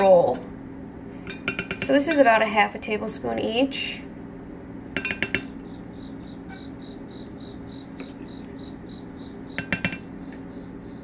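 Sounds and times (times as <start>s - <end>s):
metal spoon clinking dish: 9.6s - 10.0s.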